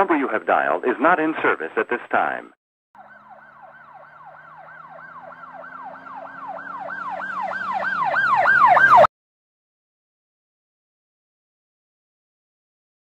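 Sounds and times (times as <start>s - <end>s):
emergency siren yelping: 3.0s - 9.1s.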